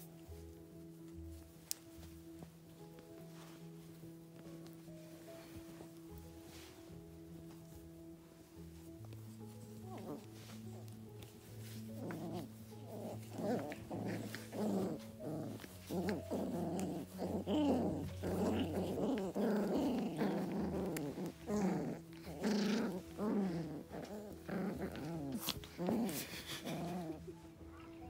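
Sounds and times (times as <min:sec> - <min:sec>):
puppies whining and growling: 0:09.0 - 0:28.0.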